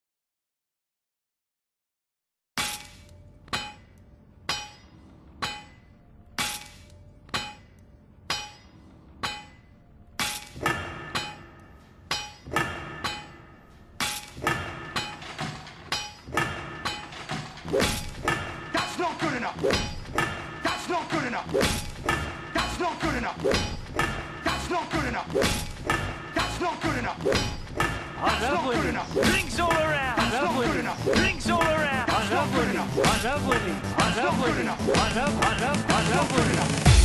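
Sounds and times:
electronic music: 22.2 - 37.0.

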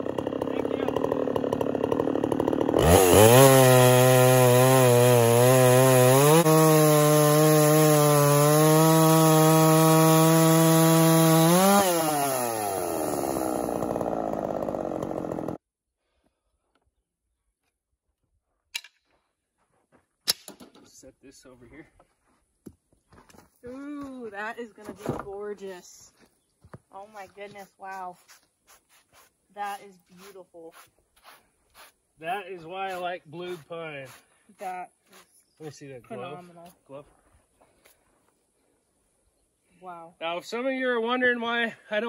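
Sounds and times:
chainsaw cutting log: 0.0 - 15.6, 32.8 - 35.3.

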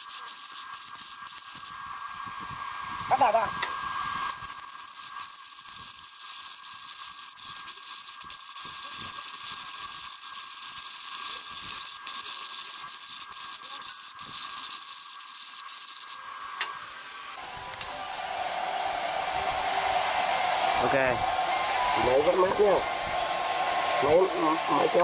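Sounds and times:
welding arc crackling: 0.0 - 17.9
steady high whine: 1.0 - 6.1, 15.9 - 25.0.

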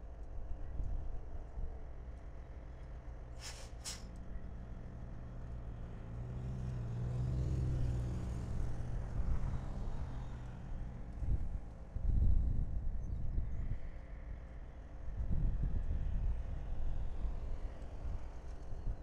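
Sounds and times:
short hissing bursts: 3.4 - 4.1.

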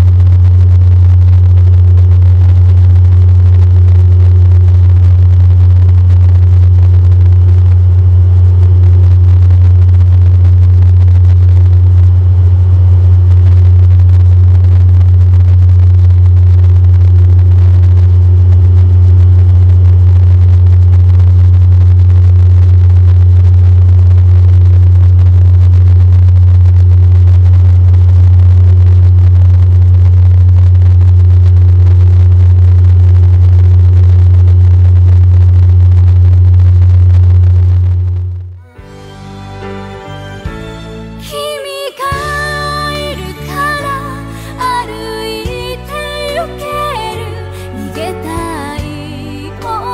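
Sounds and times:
propeller low hum: 0.0 - 38.5.

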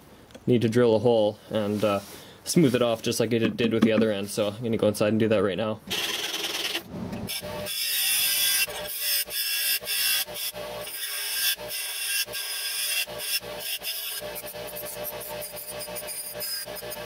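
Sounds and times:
grinder wheel grinding steel: 5.9 - 17.0.

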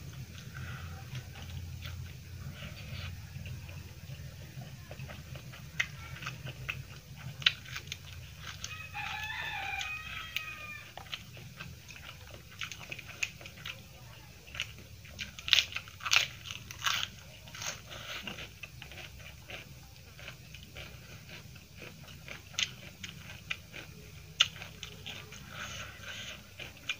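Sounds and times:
steady low hum: 0.0 - 26.9
wet chewing and mouth clicks: 0.1 - 26.9
crunchy bites: 5.0 - 13.8, 14.5 - 26.9
rooster crowing: 8.4 - 11.1.

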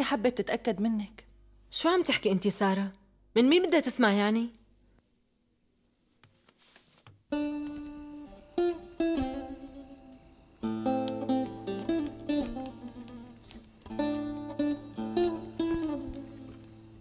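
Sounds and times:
acoustic guitar music: 7.3 - 17.0.

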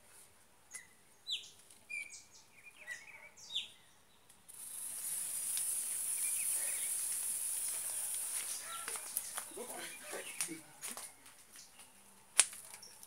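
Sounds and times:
bird chirps: 0.7 - 4.3, 5.9 - 10.7
firework hissing: 4.5 - 9.6.

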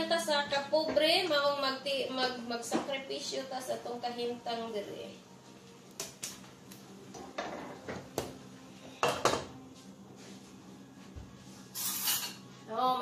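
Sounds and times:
utensils clattering against dishes: 11.8 - 12.4.

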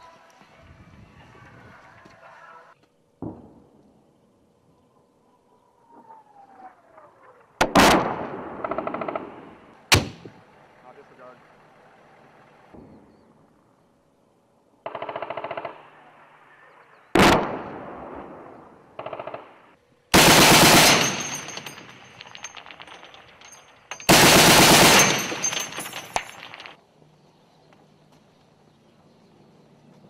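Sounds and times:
machine-gun fire bursts: 14.9 - 15.9, 17.2 - 17.8, 19.0 - 21.4, 24.1 - 25.5.

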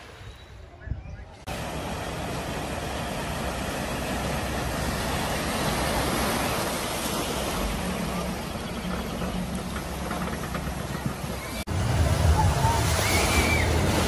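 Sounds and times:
water rushing and splashing: 1.4 - 14.0.

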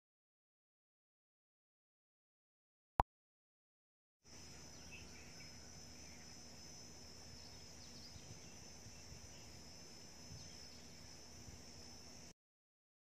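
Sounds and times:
insects droning: 4.3 - 12.3.

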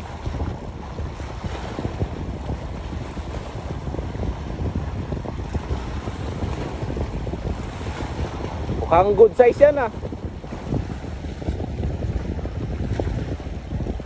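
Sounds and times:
waves washing against rocks: 0.0 - 14.0
wind buffeting microphone: 0.0 - 14.0.

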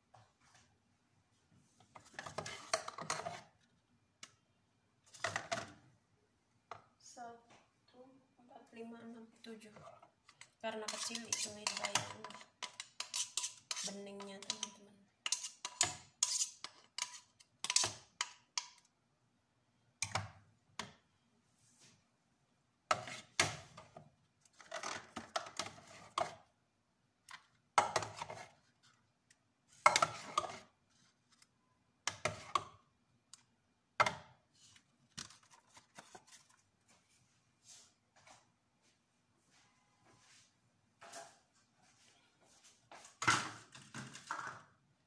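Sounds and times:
metal spoon scraping plastic jar: 10.4 - 18.7.

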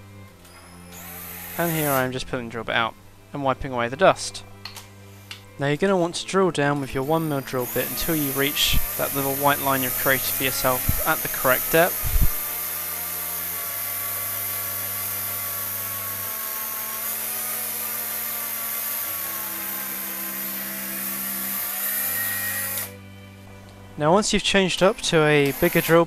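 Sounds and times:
cordless drill drilling wood: 0.4 - 2.2, 6.8 - 23.0, 25.1 - 26.0.

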